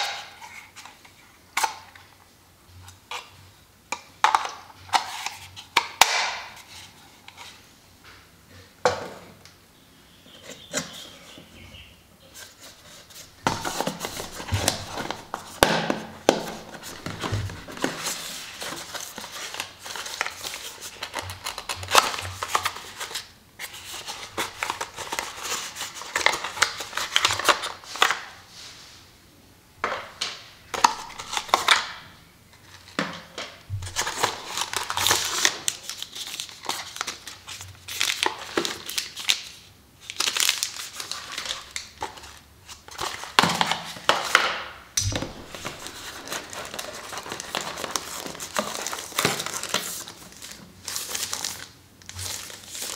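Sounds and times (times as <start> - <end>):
cardboard scraping and rustling: 12.3 - 21.1, 45.1 - 51.6.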